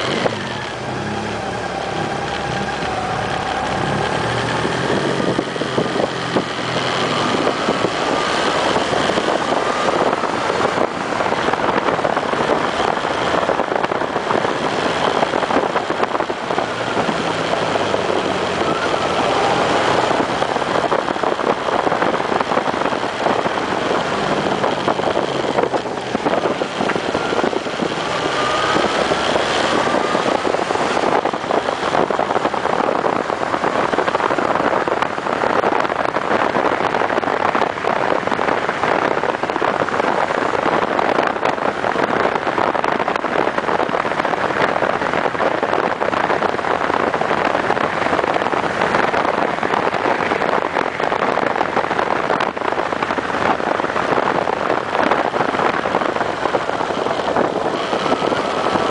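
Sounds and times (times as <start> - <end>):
motorcycle engine revving: 0.0 - 58.9
wind rush on microphone: 0.0 - 58.9.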